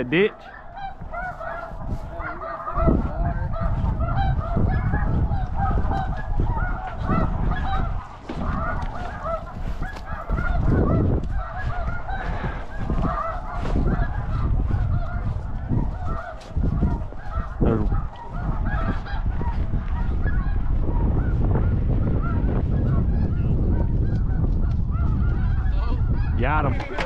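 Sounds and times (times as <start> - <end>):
geese honking: 0.0 - 27.0.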